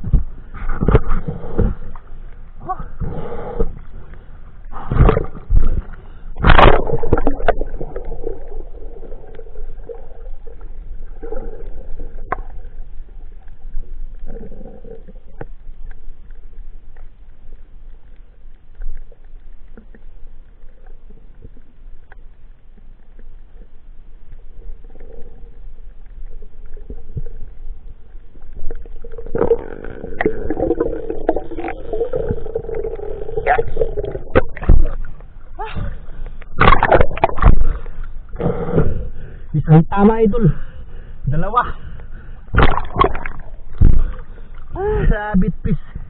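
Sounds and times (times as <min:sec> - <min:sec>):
sharp underwater clicks: 0:36.2 - 0:38.4, 0:42.0 - 0:44.7.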